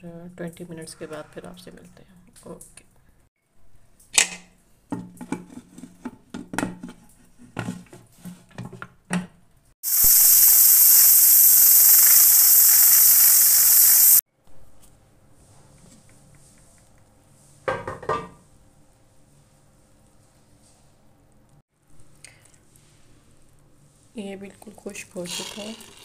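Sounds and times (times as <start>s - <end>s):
steam hissing from valve: 9.8s - 14.2s.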